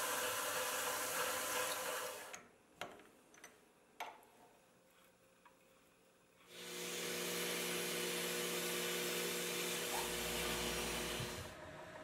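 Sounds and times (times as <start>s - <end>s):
lathe hissing and humming: 6.5s - 12.0s.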